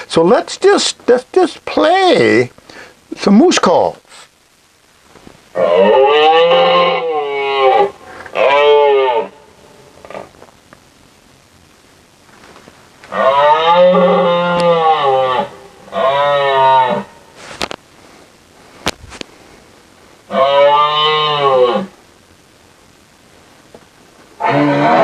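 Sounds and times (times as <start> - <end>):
recorded moose calls: 5.5 - 10.3, 13.1 - 17.3, 20.3 - 22.0, 24.4 - 25.0.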